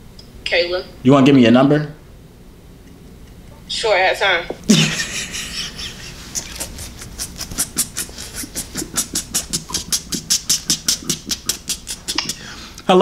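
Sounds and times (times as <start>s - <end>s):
rapid even clicking: 6.5s - 12.4s.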